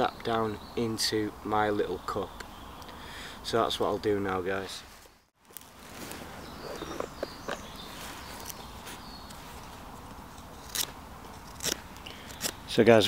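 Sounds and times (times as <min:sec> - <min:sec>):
handling rustle: 0:04.8 - 0:12.6
faint bird chirps: 0:06.0 - 0:09.7.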